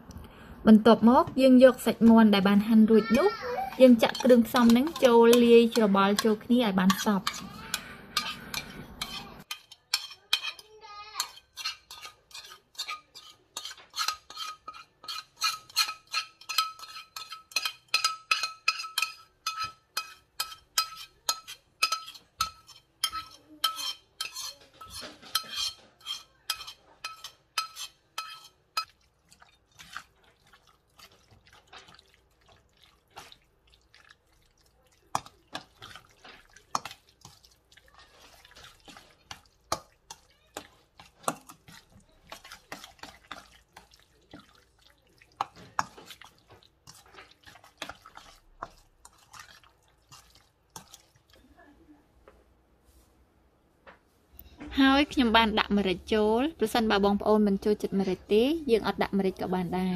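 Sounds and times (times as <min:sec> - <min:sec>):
metal spoon clinking in steel bowl: 0:03.7 - 0:29.0.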